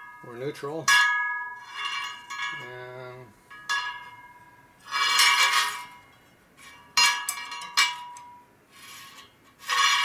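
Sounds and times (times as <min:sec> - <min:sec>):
metal scraping on spoked wheel: 0:04.9 - 0:06.0, 0:08.7 - 0:10.0.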